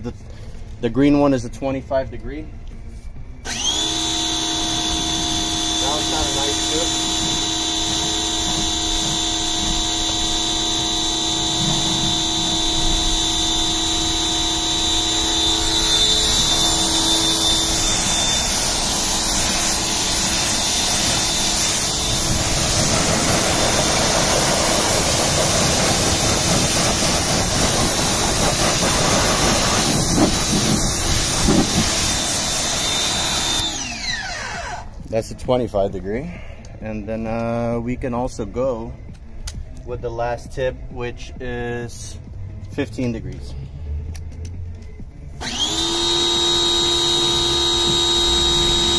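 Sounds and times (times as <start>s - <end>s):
pressure washer motor whining: 3.4s - 35.1s, 45.4s - 48.9s
water jet spray hissing: 5.8s - 33.6s.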